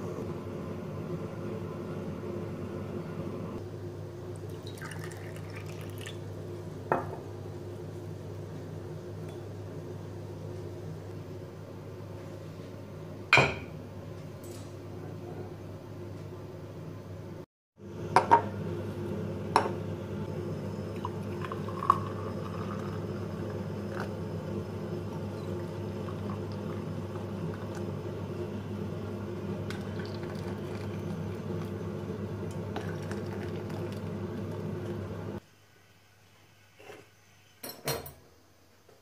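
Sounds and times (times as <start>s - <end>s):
steady low hum: 0.0s - 35.4s
tea pouring into glasses: 4.4s - 6.2s, 20.9s - 24.2s, 25.0s - 28.1s, 29.6s - 31.8s, 32.5s - 35.0s.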